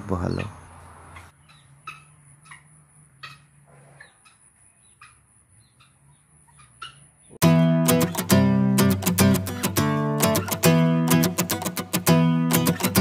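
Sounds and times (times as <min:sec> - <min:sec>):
bird chick peeping: 0:00.2 - 0:07.4
acoustic guitar music: 0:07.4 - 0:13.0.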